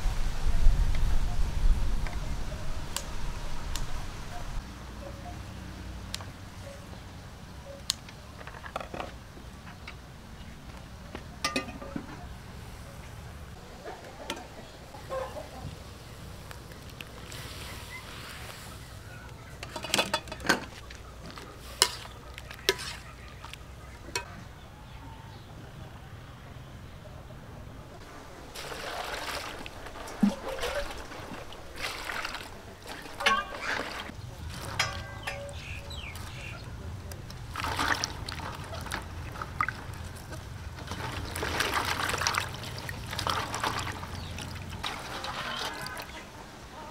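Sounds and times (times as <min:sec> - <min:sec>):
metal lid and colander clinking: 0:11.4 - 0:12.3, 0:19.6 - 0:20.7, 0:28.6 - 0:36.4, 0:43.1 - 0:46.1
water pouring and splashing: 0:28.4 - 0:36.5, 0:37.2 - 0:46.4.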